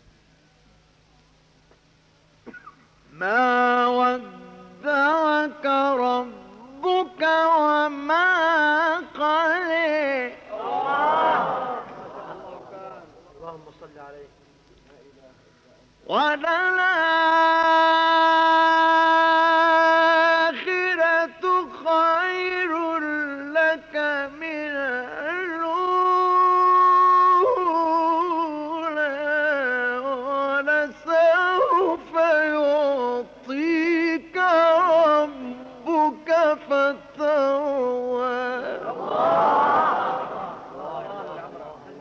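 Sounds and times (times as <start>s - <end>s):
man reciting melodically: 3.1s - 10.6s, 15.3s - 39.1s.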